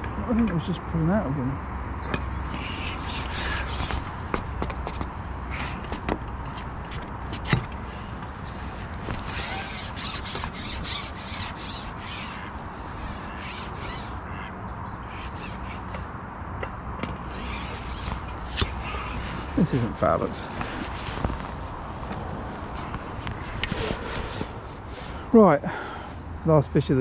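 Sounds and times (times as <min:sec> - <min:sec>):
rustling and scraping handling noise: 0:02.5 - 0:14.2, 0:17.2 - 0:25.3.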